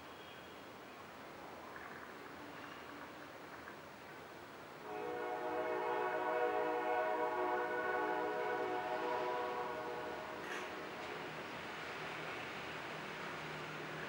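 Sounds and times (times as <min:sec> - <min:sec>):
horn blast: 0:04.8 - 0:11.4.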